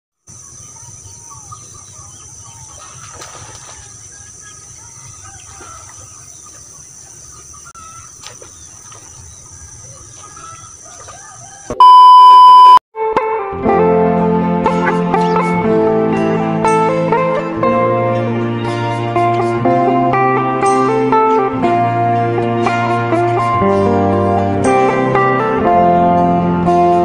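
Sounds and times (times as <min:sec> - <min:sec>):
scattered bird calls: 0:00.3 - 0:11.8
loud electronic beep: 0:11.8 - 0:12.8.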